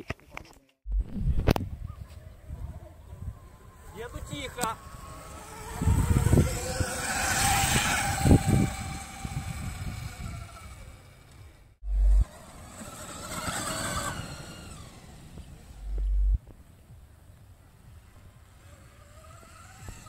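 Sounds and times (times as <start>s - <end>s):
tyre and ground noise: 0.0s - 20.0s
wind rumble on microphone: 0.9s - 10.9s, 11.8s - 12.3s
electric motor whine: 3.1s - 16.4s, 18.4s - 20.0s.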